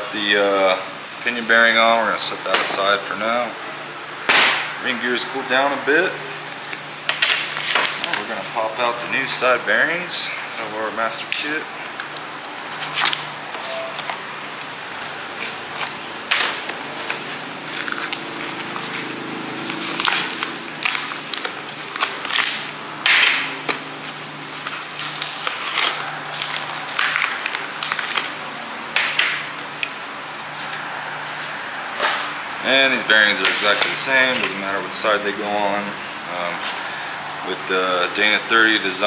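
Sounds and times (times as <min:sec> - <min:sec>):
plastic packaging crackling: 0:11.4 - 0:30.0.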